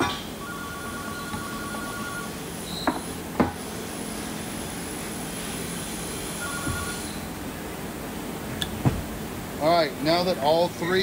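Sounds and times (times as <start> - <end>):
mechanical background hum: 0.0 - 11.0
dull knock on workbench: 8.8 - 9.1.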